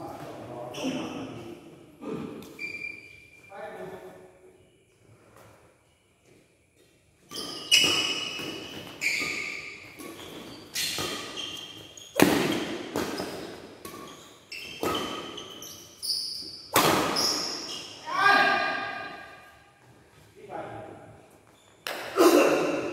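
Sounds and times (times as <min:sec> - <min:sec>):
court shoes squeaking: 0:00.0 - 0:01.5, 0:02.4 - 0:03.5, 0:04.7 - 0:18.1, 0:21.2 - 0:22.9
rackets striking shuttlecock: 0:07.3 - 0:15.6.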